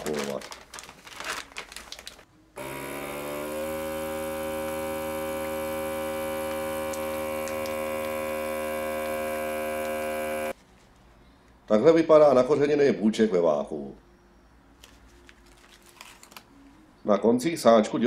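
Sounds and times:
vacuum sealer pump hum: 2.6 - 10.6.

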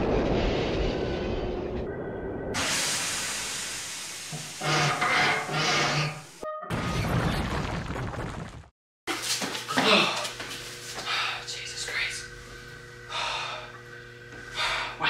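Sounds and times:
loud hiss of steam: 2.6 - 6.2.

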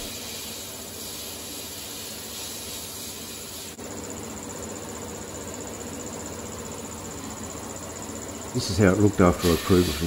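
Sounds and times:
sandblaster hissing: 0.0 - 3.8, 8.6 - 10.0.

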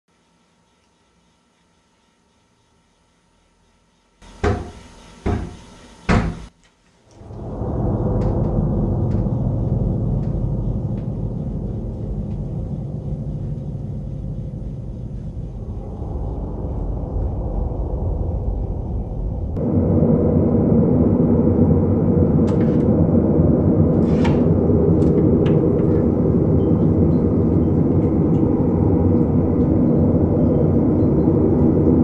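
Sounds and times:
loud knocks on a door: 4.4 - 6.5
loud steady low rumble: 7.1 - 32.0.

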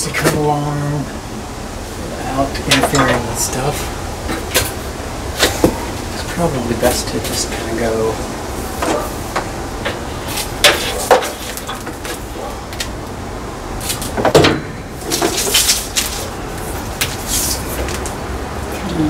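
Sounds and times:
cable rustling and scraping: 2.3 - 12.9, 15.0 - 18.2.

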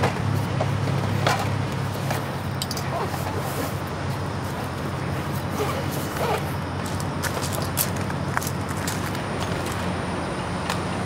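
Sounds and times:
road noise: 0.0 - 11.0
vehicle engine drone: 0.0 - 11.0.

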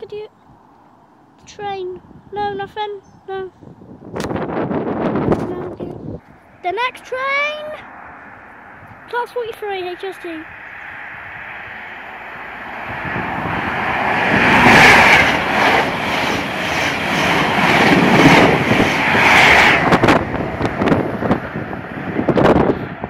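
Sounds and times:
wind buffeting microphone: 0.0 - 23.0
diesel train passing at speed: 6.3 - 23.0.

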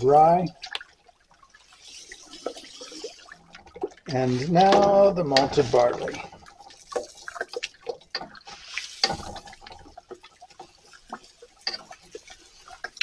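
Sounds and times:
thick mash stirred in pot: 4.1 - 13.0.

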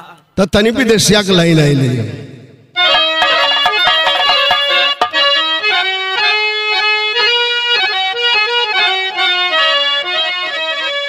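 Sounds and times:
harmonium melody: 2.8 - 11.0.

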